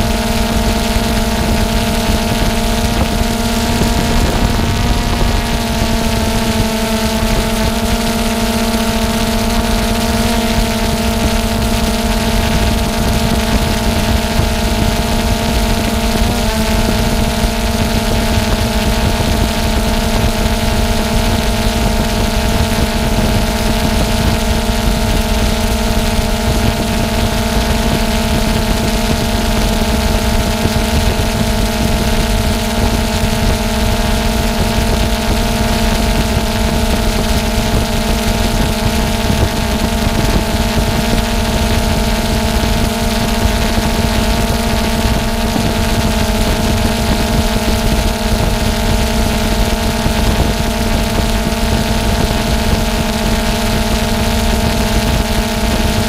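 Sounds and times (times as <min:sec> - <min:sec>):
rush of air: 0:00.0 - 0:54.0
drone propellers whining hum: 0:00.0 - 0:56.0.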